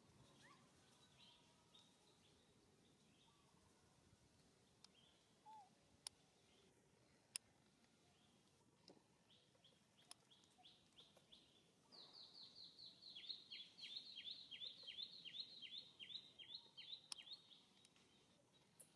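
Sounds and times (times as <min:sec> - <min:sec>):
bird chirping: 0:00.0 - 0:03.7, 0:04.6 - 0:06.8, 0:09.2 - 0:18.9
faint clicks: 0:04.4 - 0:05.0, 0:06.0 - 0:06.2, 0:07.1 - 0:11.4, 0:17.0 - 0:18.9.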